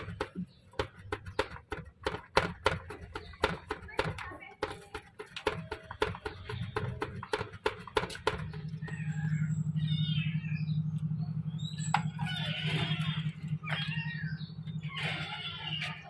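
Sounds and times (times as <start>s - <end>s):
rapid tapping and rattling: 0.0s - 9.5s
steady low hum: 6.1s - 16.0s
kitten crying: 12.2s - 16.0s.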